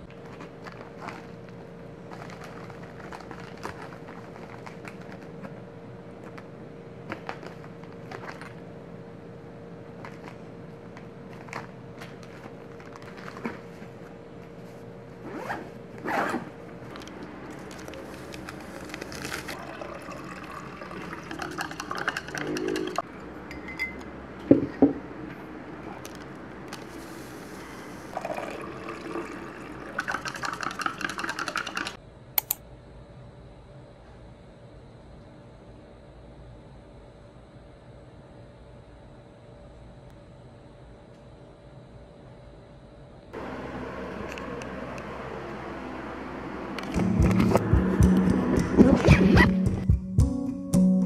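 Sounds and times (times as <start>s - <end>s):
steady hum: 0.0s - 51.0s
bubble-wrap pouch crinkling: 2.1s - 5.5s, 11.3s - 13.7s, 17.5s - 19.6s
stick clinking on mug: 21.9s - 24.0s
sharp clicks: 32.4s - 32.6s.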